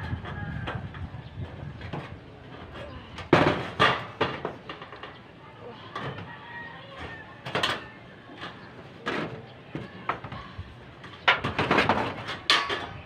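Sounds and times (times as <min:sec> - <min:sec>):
thin metal clacking and clattering: 0:11.0 - 0:13.0.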